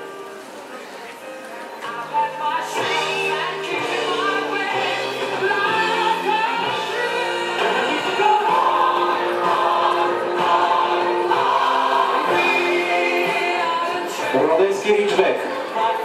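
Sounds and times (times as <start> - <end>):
choir singing held notes: 2.7 - 14.6.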